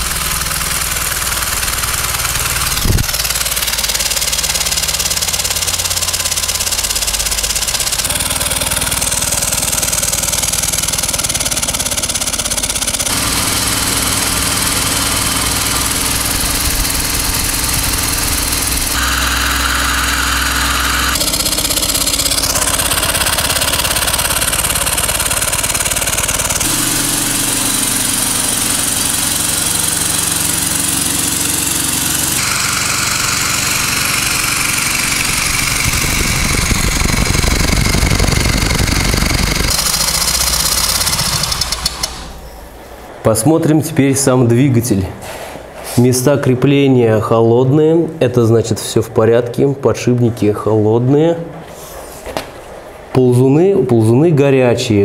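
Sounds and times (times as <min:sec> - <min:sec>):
steam engine running: 0:00.0 - 0:42.5.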